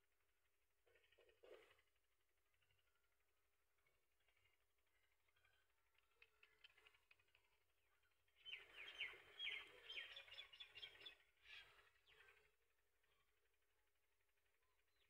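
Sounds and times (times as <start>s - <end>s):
faint bird chirping: 0.1s - 15.0s.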